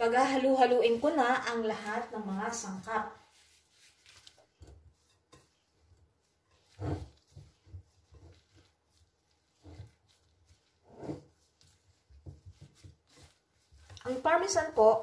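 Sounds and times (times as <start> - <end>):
gloved hands squishing rice: 0.0 - 15.0.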